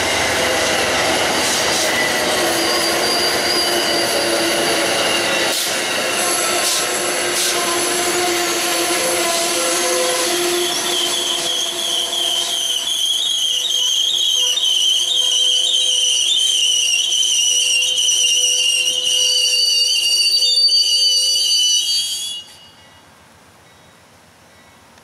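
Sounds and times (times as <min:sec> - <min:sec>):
train wheels squealing on rail: 0:00.0 - 0:24.8.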